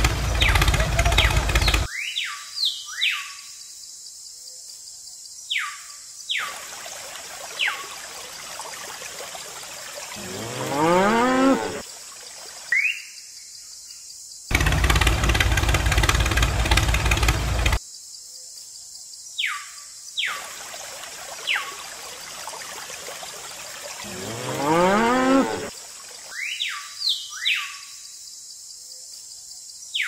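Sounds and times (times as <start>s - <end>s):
loud pulsing rumble: 0.0s - 1.9s, 14.5s - 17.8s
cow mooing: 10.2s - 11.8s, 24.1s - 25.7s.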